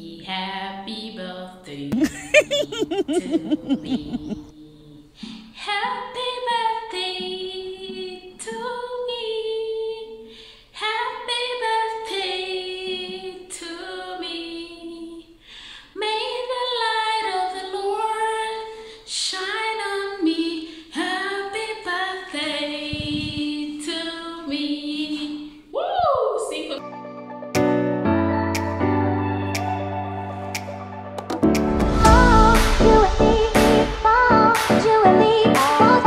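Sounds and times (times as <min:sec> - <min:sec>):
woman singing unaccompanied: 0:00.0 - 0:15.3, 0:16.0 - 0:25.6, 0:32.1 - 0:36.0.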